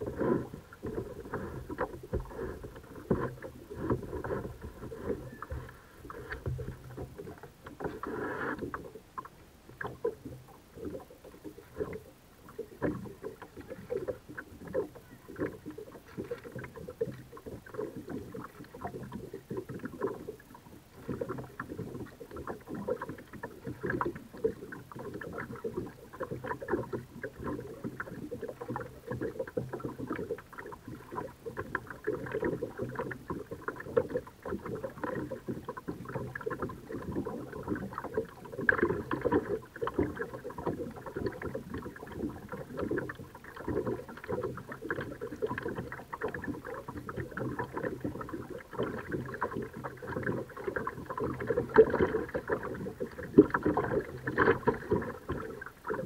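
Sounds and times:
paddle splashing water: 0.0s - 56.0s.

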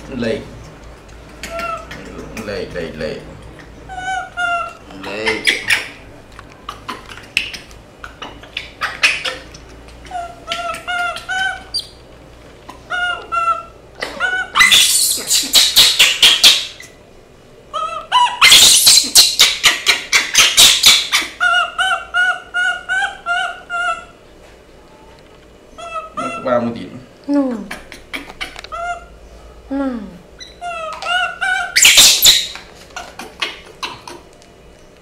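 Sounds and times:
baby monkeys screaming: 1.4s - 2.4s, 3.9s - 6.0s, 6.7s - 12.0s, 12.9s - 17.0s, 17.7s - 24.2s, 25.8s - 26.7s, 30.4s - 34.2s
baby monkeys squeaking: 1.4s - 2.4s, 3.6s - 6.1s, 6.7s - 12.0s, 12.9s - 17.0s, 17.7s - 24.1s, 25.7s - 26.6s, 30.4s - 34.2s.

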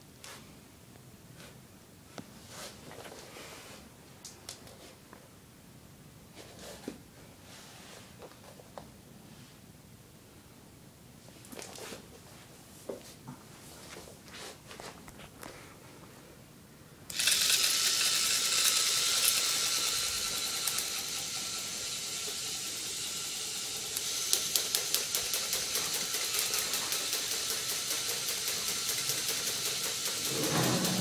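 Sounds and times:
electric motor whirring: 17.1s - 31.0s
rapid evenly spaced clicking: 23.6s - 31.0s.

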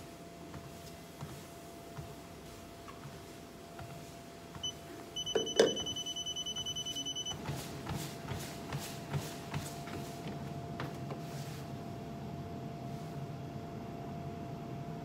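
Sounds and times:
running footfalls on treadmill belt: 0.0s - 11.8s
treadmill panel beeping: 2.0s - 10.0s.

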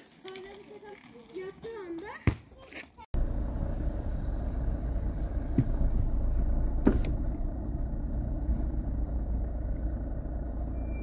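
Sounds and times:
vehicle engine rumble: 3.1s - 11.0s.

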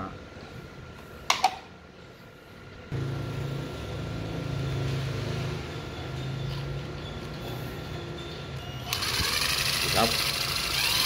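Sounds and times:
cordless drill motor running: 8.9s - 11.0s.

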